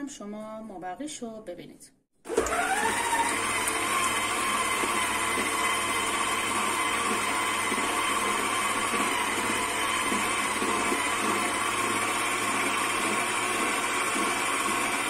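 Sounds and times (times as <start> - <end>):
stand mixer whining: 2.3 - 15.0
whisk beating cream in steel bowl: 3.1 - 15.0.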